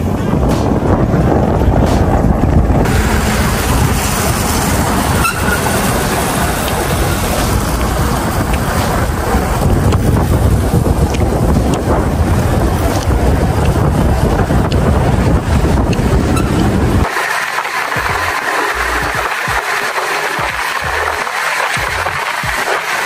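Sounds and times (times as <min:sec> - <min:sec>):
wind buffeting microphone: 0:00.0 - 0:17.1
motorcycle engine running: 0:00.0 - 0:17.3, 0:17.9 - 0:21.2.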